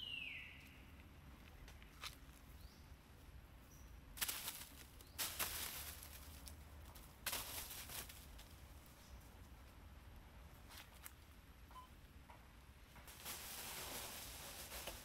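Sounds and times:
leaves and branches rustling: 4.1 - 11.5, 12.8 - 15.0
monkeys dropping onto dry leaves: 4.2 - 8.6, 13.0 - 15.0.

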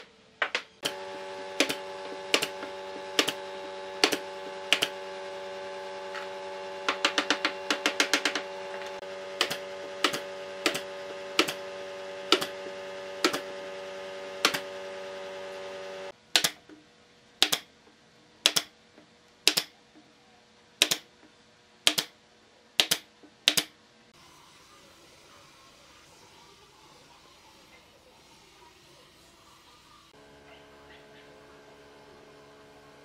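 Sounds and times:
machine hum: 0.0 - 16.2, 24.2 - 33.0.

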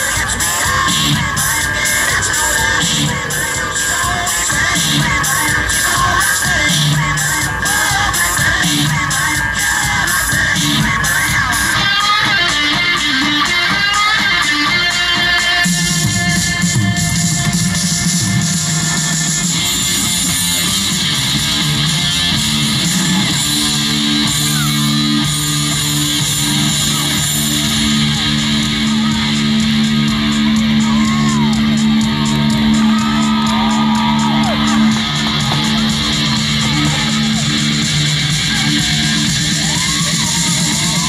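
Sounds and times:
fast high ticking rhythm: 0.0 - 41.0.

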